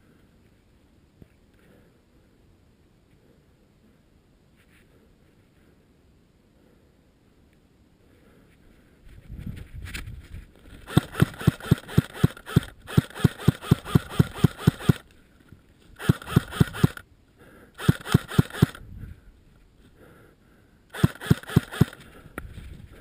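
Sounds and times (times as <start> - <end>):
gearbox whine: 10.7 - 15.2, 16.0 - 17.0
airsoft rifle full-auto bursts: 10.8 - 15.1, 16.0 - 17.1, 17.8 - 18.8, 20.9 - 22.2.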